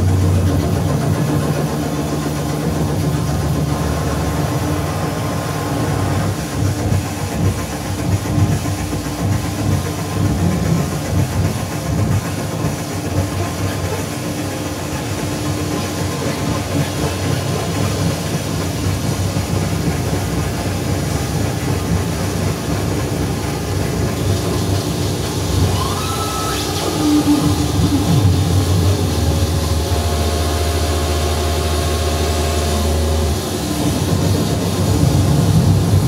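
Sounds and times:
gliding synth tone: 25.4s - 33.3s.

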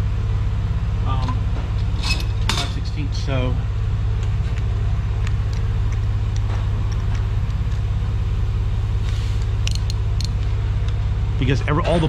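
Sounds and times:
machinery droning with fast pulse: 0.0s - 12.0s.

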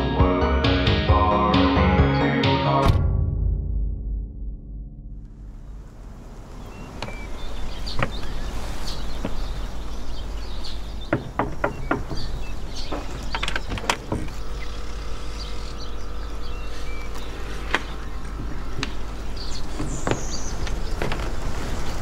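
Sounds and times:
low steady rumble: 3.0s - 7.8s, 12.3s - 21.7s
bird chirps: 6.5s - 21.0s
knocking on a door: 11.1s - 13.2s.

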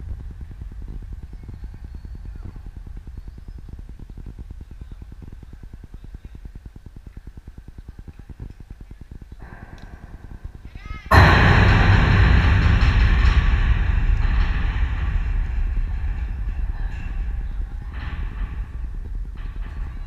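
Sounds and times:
low pulsing rumble: 9.4s - 20.0s.

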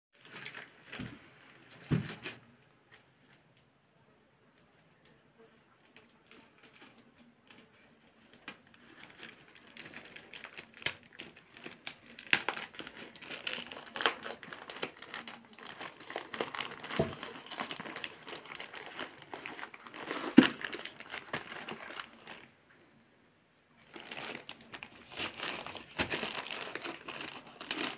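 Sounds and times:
plastic mailer bag crinkling: 0.2s - 1.0s, 8.6s - 22.5s, 23.8s - 27.9s.

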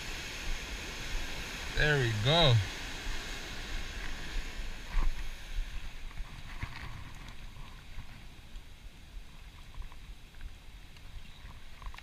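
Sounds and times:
ocean surf: 0.0s - 9.5s.

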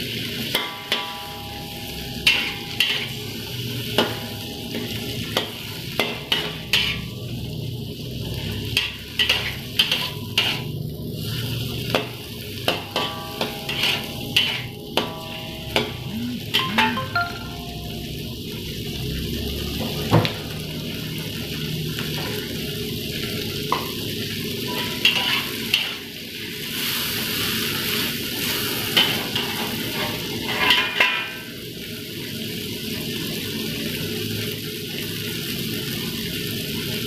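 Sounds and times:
food sizzling in oil: 0.0s - 37.0s
metal spatula scraping wok: 0.3s - 7.2s, 8.4s - 16.7s, 24.7s - 26.0s, 26.8s - 31.5s.

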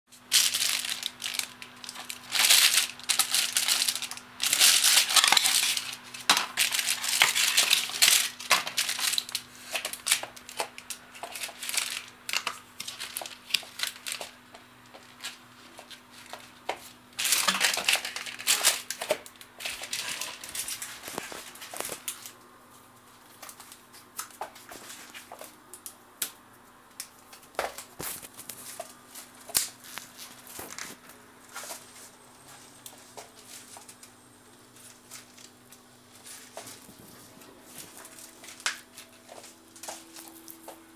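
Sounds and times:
plastic bag crinkling: 0.1s - 22.4s, 27.7s - 40.9s
faint steady hum: 0.1s - 40.9s.

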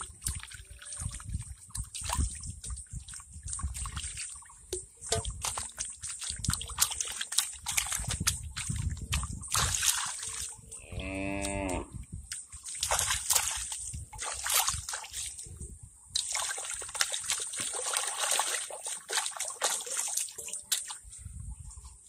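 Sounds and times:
hands splashing in water: 0.0s - 10.5s, 12.3s - 15.4s, 16.2s - 21.1s
cow mooing: 10.8s - 12.0s.

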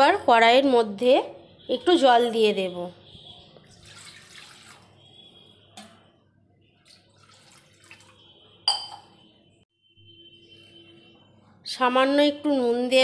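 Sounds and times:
water splashing into metal pan: 3.7s - 5.0s, 6.7s - 8.3s.

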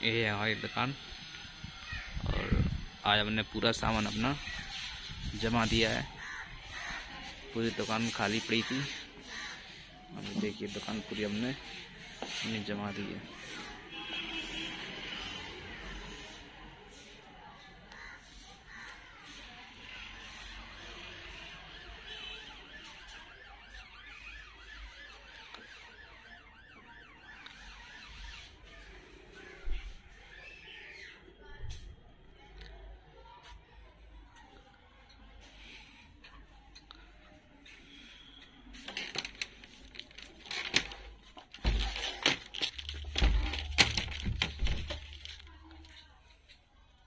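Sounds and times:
electronic siren warbling: 21.5s - 28.9s.

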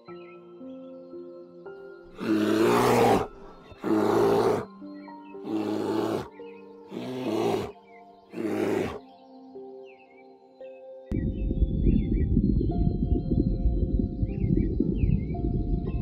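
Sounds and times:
soft background music: 0.0s - 16.0s
bears growling: 2.1s - 4.7s, 5.5s - 7.8s, 8.4s - 9.0s.

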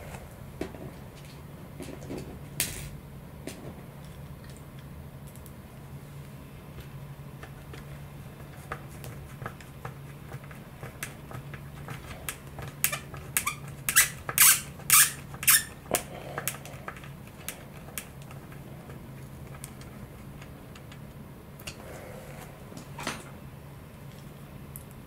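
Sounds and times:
screwdriver squeaks: 12.9s - 15.8s.

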